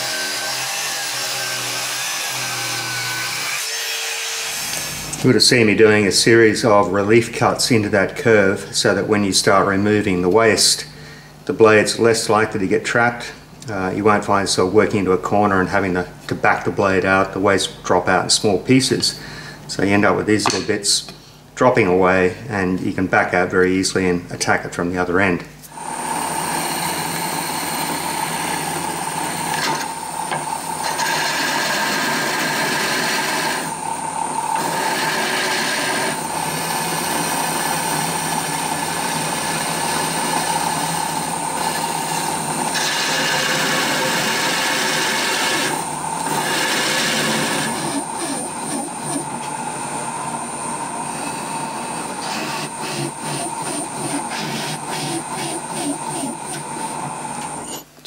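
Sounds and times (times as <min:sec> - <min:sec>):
drill press hole saw grinding: 0:00.0 - 0:05.2, 0:25.7 - 0:49.6, 0:50.5 - 0:57.9.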